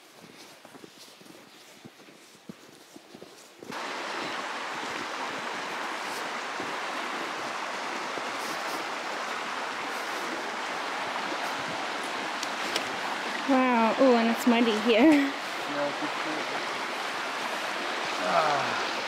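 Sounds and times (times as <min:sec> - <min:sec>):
stream rushing under snow: 0:03.7 - 0:19.0.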